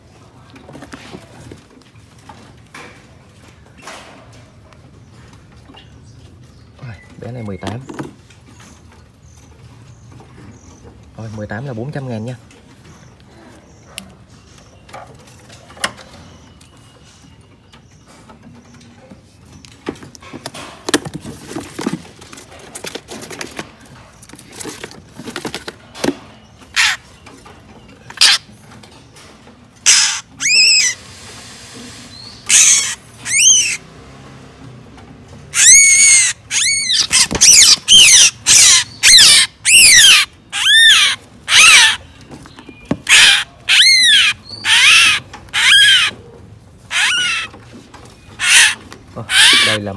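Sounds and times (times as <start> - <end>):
bird harsh distress screeches: 26.7 - 27.1, 28.2 - 28.5, 29.8 - 33.9, 35.5 - 42.1, 43.0 - 46.2, 46.8 - 47.6, 48.4 - 49.9.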